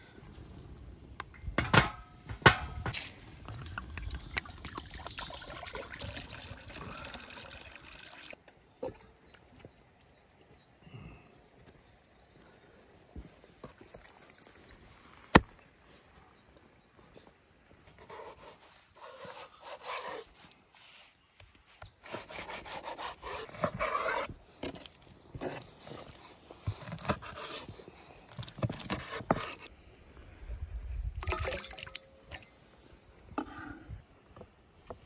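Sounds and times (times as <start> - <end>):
water pouring into a cauldron: 3.0 - 8.4, 31.1 - 32.4.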